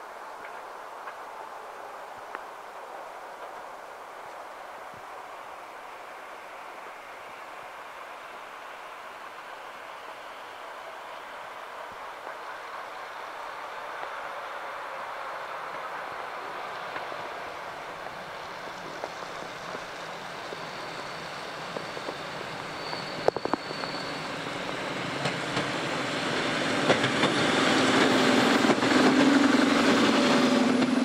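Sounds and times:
passenger train passing: 0.0 - 31.0
train wheel clicks: 21.7 - 25.8, 26.5 - 31.0.

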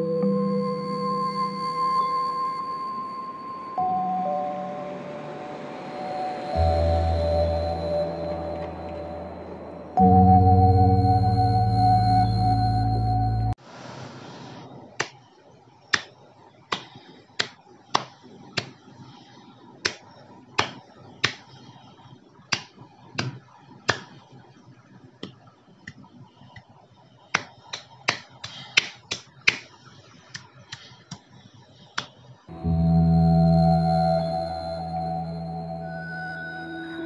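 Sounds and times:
fingers snapping: 15.0 - 15.2, 15.9 - 18.8, 19.8 - 20.0, 20.6 - 21.5, 22.5 - 24.2, 27.4 - 29.7.

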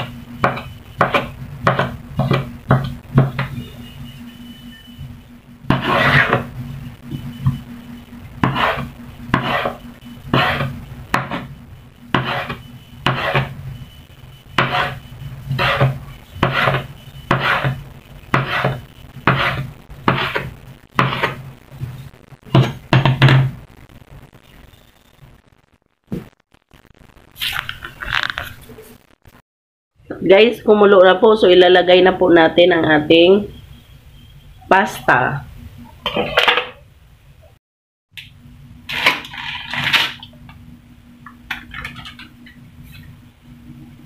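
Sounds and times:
steady low hum: 0.0 - 25.4.

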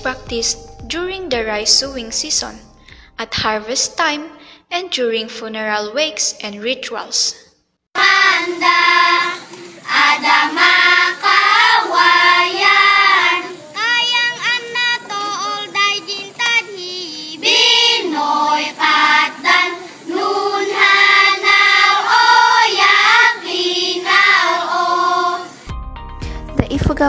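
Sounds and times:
girls chanting together: 8.0 - 25.7.

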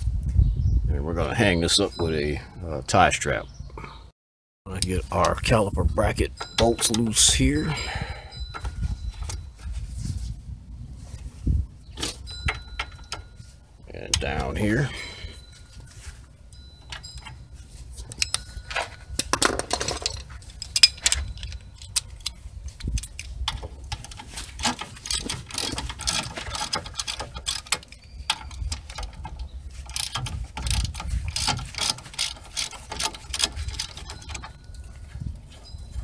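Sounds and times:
ratchet wrench clicking: 29.8 - 34.5.

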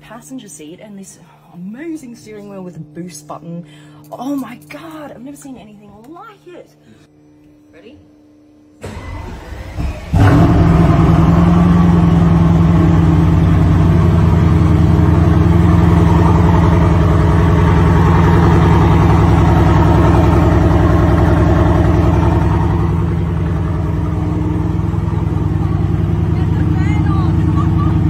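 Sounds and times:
car engine idling: 8.8 - 28.0.

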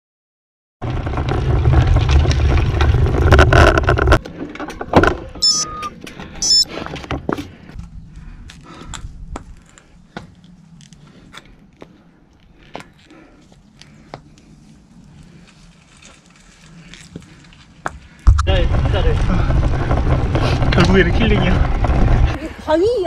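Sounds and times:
short high chirps: 5.4 - 6.7
wind buffeting microphone: 18.2 - 23.0.

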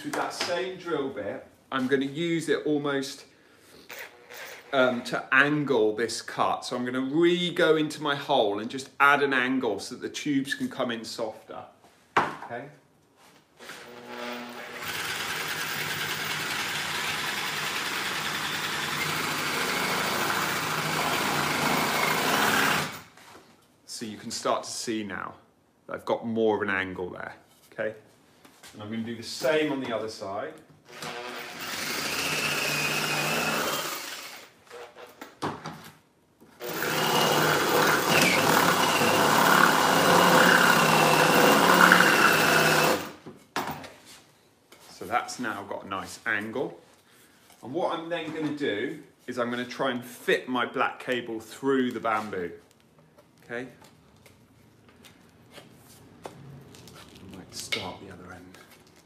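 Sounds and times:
power drill drilling bamboo: 13.6 - 23.1, 30.9 - 34.5, 36.6 - 43.2.

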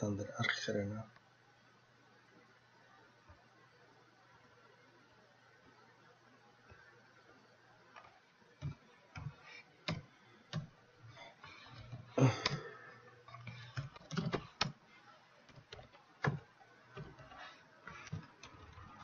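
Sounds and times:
faint low hum: 0.0 - 19.0
computer keyboard keys clicking: 8.6 - 10.7, 13.4 - 14.8.

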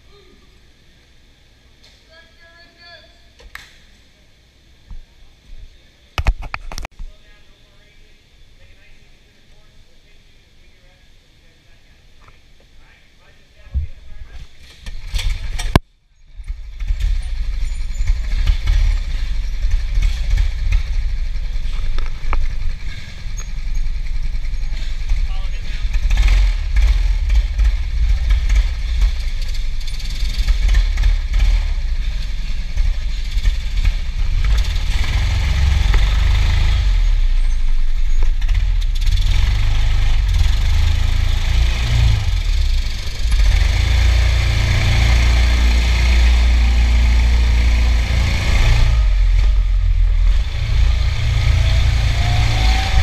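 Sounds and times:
go-kart engine rumbling: 13.7 - 53.0
rising whine: 15.2 - 53.0.

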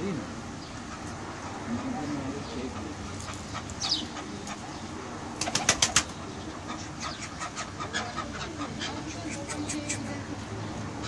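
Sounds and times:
pigeons cooing: 1.9 - 10.4.

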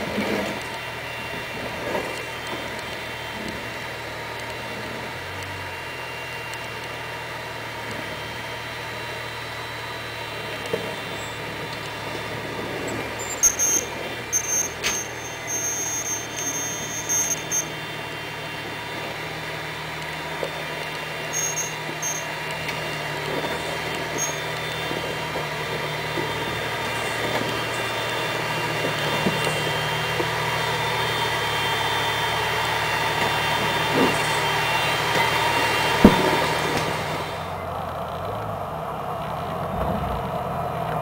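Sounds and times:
car engine at low revs: 0.0 - 41.0
short high squeaks: 8.0 - 37.4.

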